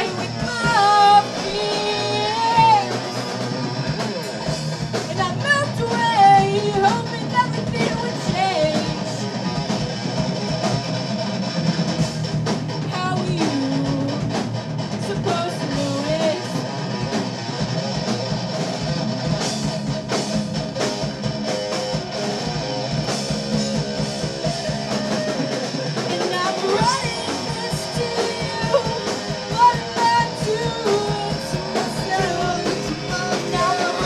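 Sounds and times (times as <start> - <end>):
person singing: 0.0 - 3.4, 5.1 - 9.3, 12.9 - 16.6, 24.7 - 34.0
bass guitar: 0.0 - 34.0
drum kit: 0.0 - 34.0
electric guitar: 0.0 - 34.0.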